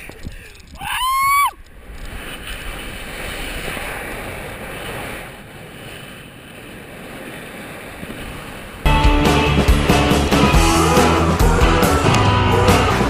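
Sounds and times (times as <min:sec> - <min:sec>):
man whooping: 0:00.8 - 0:01.6.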